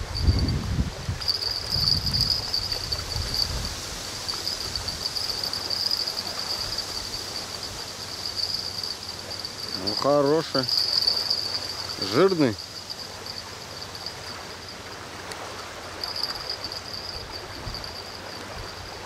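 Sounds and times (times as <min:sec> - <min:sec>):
wind rumbling on microphone: 0:00.0 - 0:12.1, 0:15.9 - 0:19.0
insects chirring: 0:00.0 - 0:19.0.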